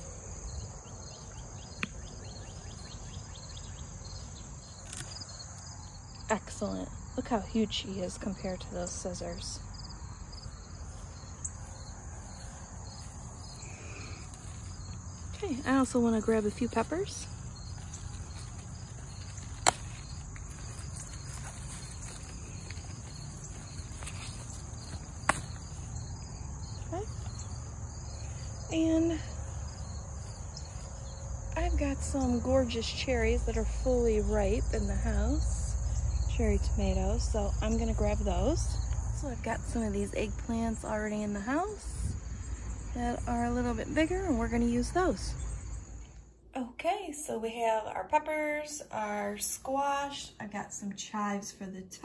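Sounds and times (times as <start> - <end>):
crickets chirping: 0.0 - 46.4
insects chorus: 0.0 - 46.4.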